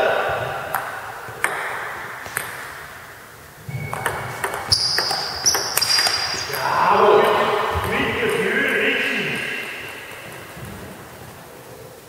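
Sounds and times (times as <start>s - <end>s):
thin steady high tones: 3.6s - 11.3s
table tennis ball clicking: 3.9s - 6.7s.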